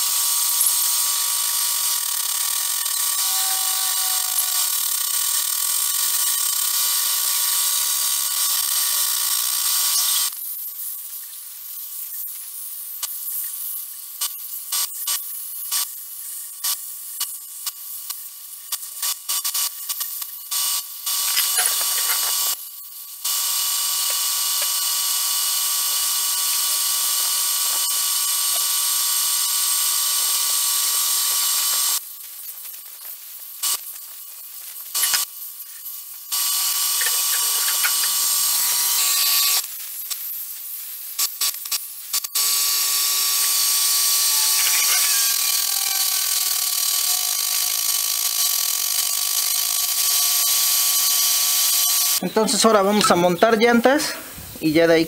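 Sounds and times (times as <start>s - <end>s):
air blow gun hissing: 0.0s - 5.4s, 21.1s - 22.6s, 34.8s - 41.5s, 42.8s - 48.8s.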